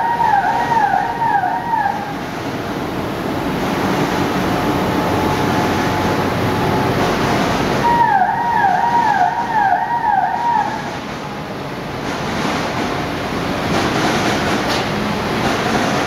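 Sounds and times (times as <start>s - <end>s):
falling electronic warning tone: 0.0s - 2.0s
printing press running: 0.0s - 16.0s.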